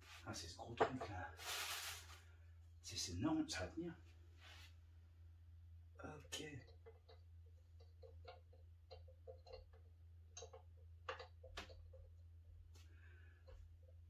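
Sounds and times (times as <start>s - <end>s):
low steady hum: 0.0s - 14.0s
sharp clicks and knocks: 6.4s - 12.2s.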